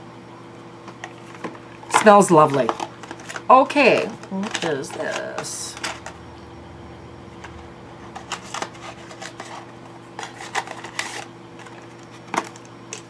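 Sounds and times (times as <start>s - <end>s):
faint steady hum: 3.9s - 12.1s.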